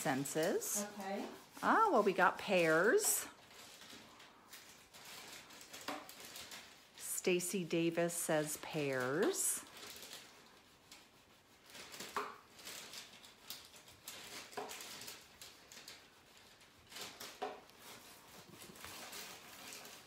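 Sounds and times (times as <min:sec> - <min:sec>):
iron rubbing on tissue paper: 0:00.0 - 0:03.8, 0:04.6 - 0:13.0, 0:13.7 - 0:20.0
tissue paper crinkling: 0:00.1 - 0:20.0.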